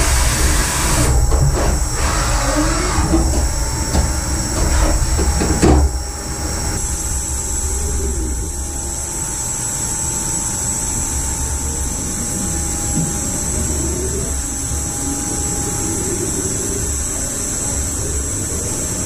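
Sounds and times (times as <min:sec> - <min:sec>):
machine knocks: 0:00.0 - 0:06.6
steady machine hum: 0:00.0 - 0:19.0.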